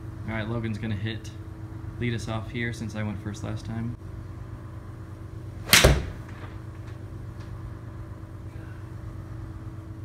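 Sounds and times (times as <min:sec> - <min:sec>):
steady low hum: 0:00.0 - 0:10.0
ball thudding on screen: 0:05.6 - 0:06.8
golf club striking ball: 0:05.6 - 0:06.8.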